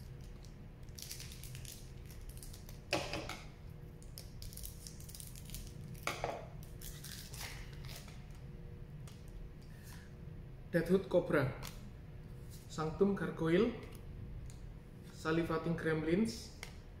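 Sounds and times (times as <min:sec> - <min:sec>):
scissors cutting foil wrapper: 0:00.0 - 0:02.8, 0:04.1 - 0:06.0, 0:06.6 - 0:08.1
foil wrapper crinkling: 0:00.0 - 0:02.9, 0:04.0 - 0:06.0, 0:06.6 - 0:08.2.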